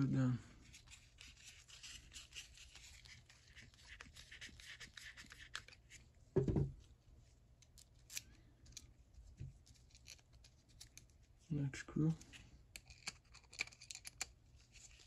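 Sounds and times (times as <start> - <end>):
screwdriver laid down thump: 6.4 - 6.7
small knock: 6.4 - 6.8.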